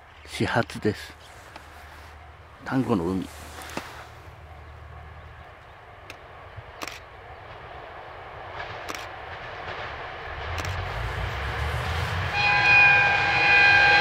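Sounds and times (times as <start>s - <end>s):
diesel railcar approaching: 0.0s - 14.0s.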